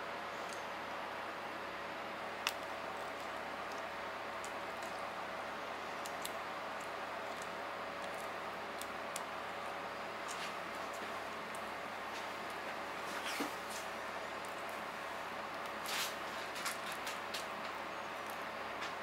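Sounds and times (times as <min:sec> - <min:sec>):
shells snapping as peeled: 0:02.4 - 0:03.8, 0:06.0 - 0:09.4.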